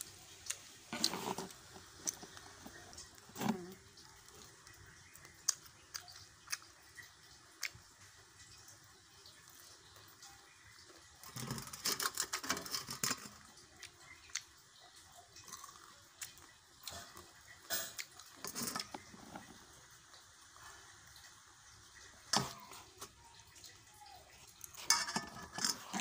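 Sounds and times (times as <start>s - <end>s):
person chewing and lip smacking: 0.4s - 7.8s, 13.7s - 14.6s.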